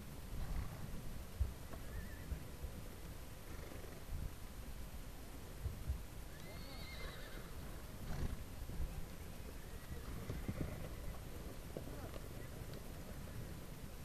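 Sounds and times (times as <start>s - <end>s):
horse whinnying: 1.8s - 2.3s, 6.3s - 8.4s, 9.6s - 11.1s.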